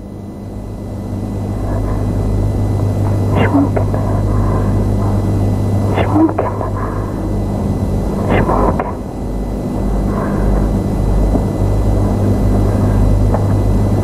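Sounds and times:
low rumble with hum: 0.0s - 14.0s.

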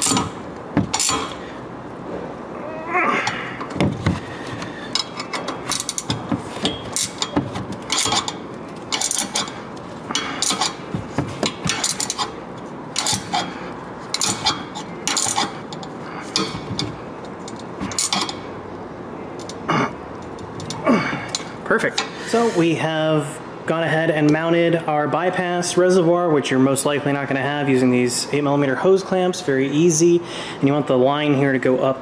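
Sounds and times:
hand ratchet clicking: 0.0s - 1.4s, 4.6s - 10.8s, 13.0s - 13.5s, 14.1s - 16.9s, 17.5s - 18.4s.

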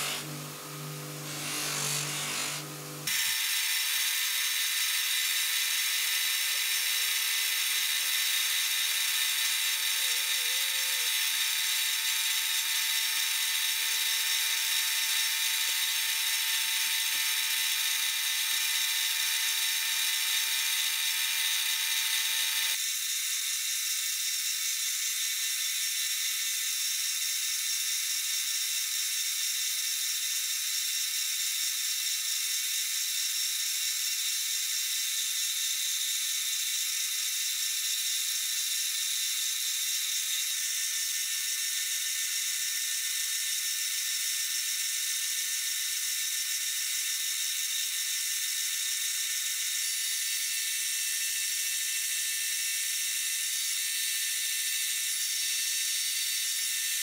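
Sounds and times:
cutting hiss: 0.0s - 16.0s
metal lathe whirring: 0.0s - 22.8s.

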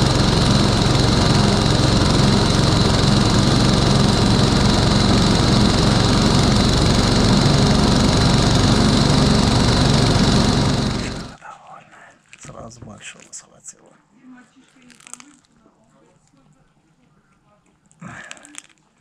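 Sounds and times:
small petrol engine running: 0.0s - 11.4s.

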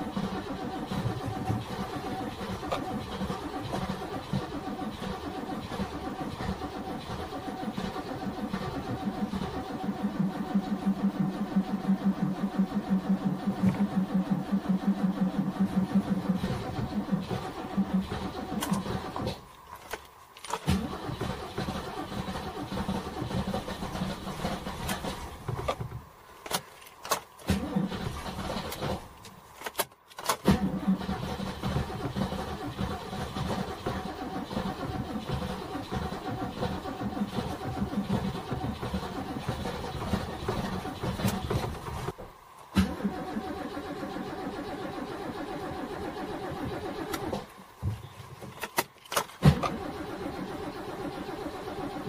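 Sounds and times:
race car engine idling roughly: 0.0s - 19.3s, 20.8s - 25.8s, 30.6s - 42.2s
engine throttle bursts: 0.0s - 19.4s, 20.6s - 25.5s, 27.5s - 29.2s, 30.4s - 42.2s, 49.4s - 52.0s.

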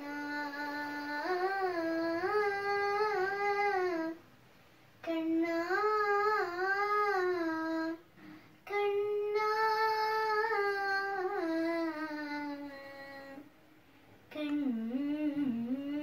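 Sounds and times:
short breath: 8.1s - 8.6s.

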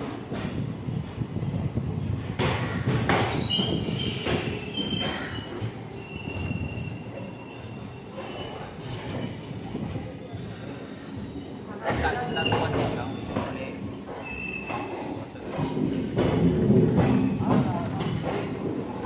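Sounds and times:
train rumbling: 0.0s - 19.0s
high wheel squeal: 3.4s - 9.6s.

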